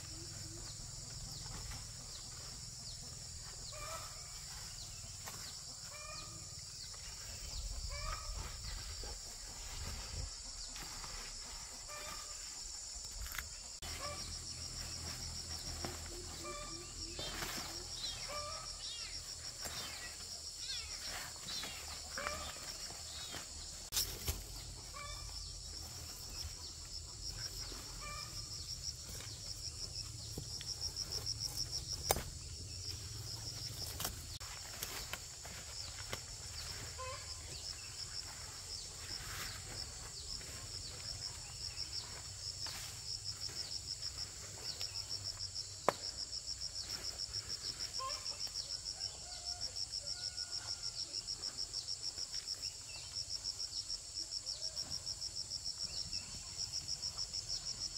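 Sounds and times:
crickets chirping: 0.0s - 57.9s
high insect drone: 0.0s - 57.9s.

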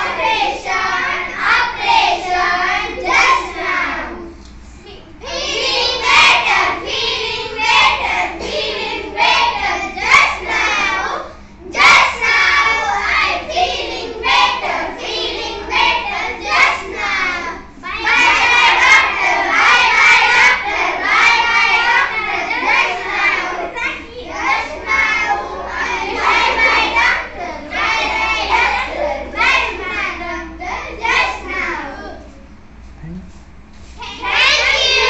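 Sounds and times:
children singing in unison: 5.2s - 11.2s, 11.8s - 32.0s, 34.2s - 35.0s.

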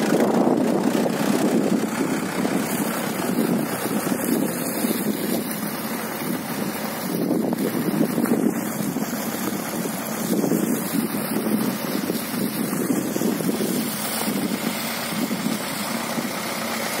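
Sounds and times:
tractor engine running: 0.0s - 17.0s
wind buffeting microphone: 0.0s - 17.0s.

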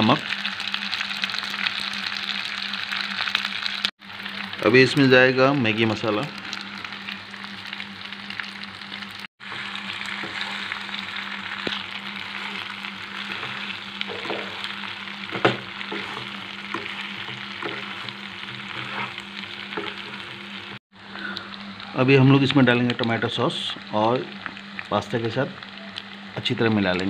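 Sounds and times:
food sizzling in oil: 0.0s - 27.0s
spatula scraping a pan: 15.3s - 20.4s.

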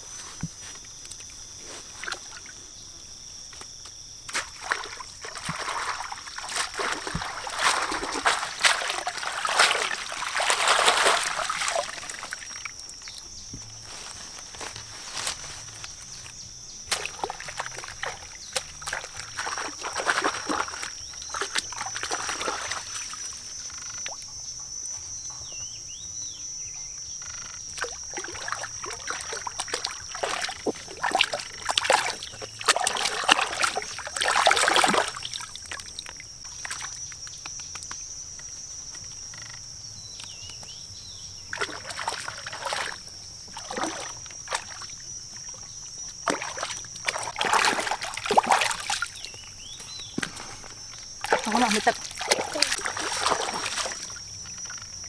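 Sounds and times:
water splashing and sloshing: 4.3s - 24.3s, 27.4s - 37.3s, 41.4s - 55.0s
high-pitched wildlife chorus: 4.5s - 55.0s.

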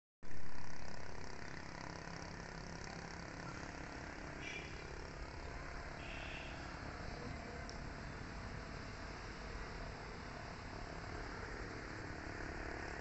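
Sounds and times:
vehicle rumble and hiss: 0.3s - 13.0s.

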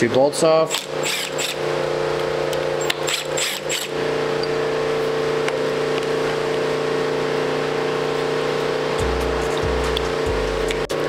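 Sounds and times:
cordless driver spinning bolts: 0.7s - 1.6s, 2.5s - 4.6s
steady low hum: 0.8s - 11.0s.

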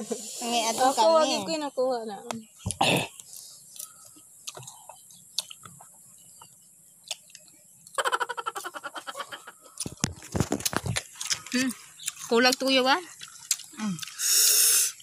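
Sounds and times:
crisp fruit being chewed: 2.7s - 8.8s, 9.6s - 15.0s.

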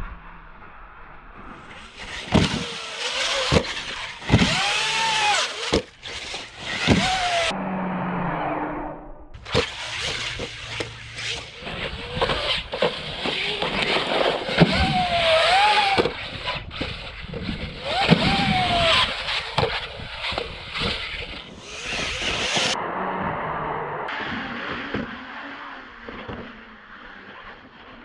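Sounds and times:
electric motor whining: 1.9s - 7.6s, 9.4s - 22.8s
knocks and thumps from landings: 2.0s - 2.8s.

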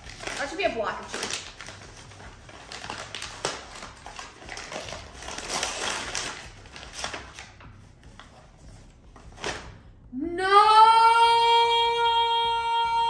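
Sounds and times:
packaging rustling and crinkling: 0.0s - 9.9s.

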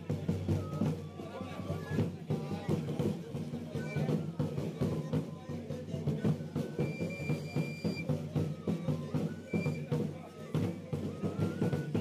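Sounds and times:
drum beating steady rhythm: 0.0s - 12.0s
high flute playing: 3.8s - 12.0s.

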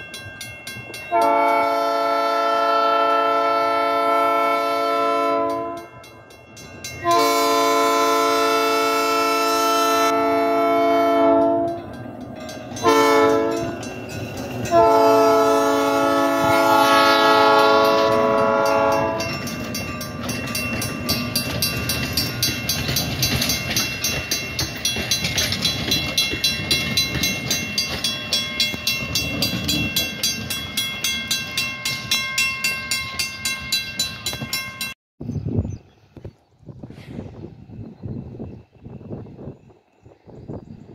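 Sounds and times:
crossing signal bell ringing: 0.0s - 2.5s, 4.7s - 35.0s
train coaches rolling: 0.0s - 35.0s
locomotive air horn: 1.1s - 5.9s, 7.0s - 11.9s, 12.8s - 13.8s, 14.6s - 19.4s.

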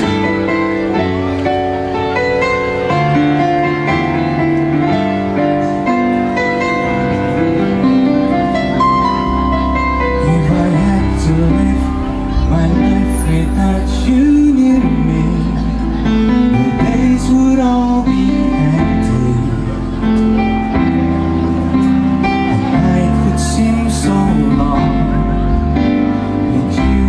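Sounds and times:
band playing slow song: 0.0s - 27.0s
bass guitar: 0.0s - 27.0s
man singing: 10.0s - 20.2s, 22.4s - 27.0s.

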